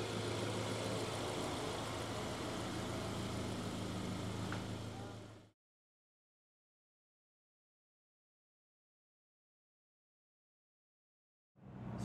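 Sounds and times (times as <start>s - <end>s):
car engine humming: 0.0s - 5.5s.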